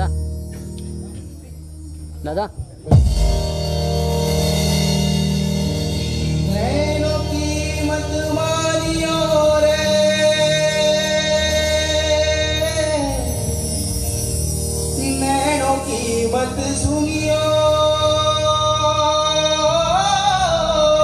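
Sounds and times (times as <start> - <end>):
instrumental accompaniment: 0.0 - 21.0
man singing into a microphone: 6.4 - 13.8, 14.8 - 21.0.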